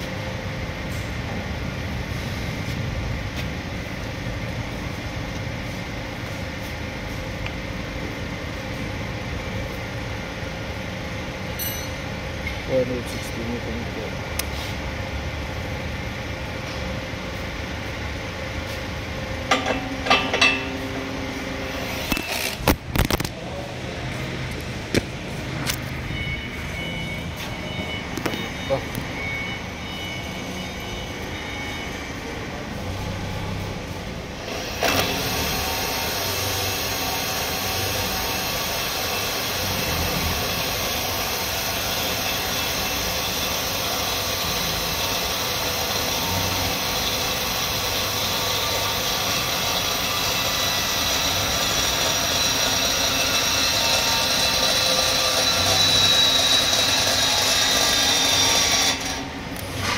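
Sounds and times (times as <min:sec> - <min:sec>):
cordless drill gear whine: 0:21.7 - 0:23.2, 0:34.4 - 0:59.9.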